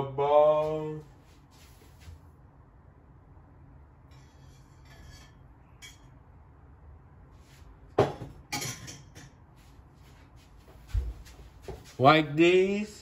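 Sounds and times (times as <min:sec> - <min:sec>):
kitchenware clinking: 0:08.0 - 0:09.4.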